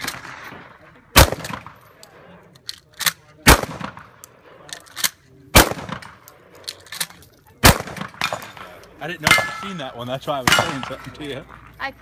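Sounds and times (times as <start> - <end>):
shotgun shots: 0.0 - 1.8, 3.4 - 4.2, 5.5 - 6.3, 7.6 - 9.6, 10.4 - 11.0.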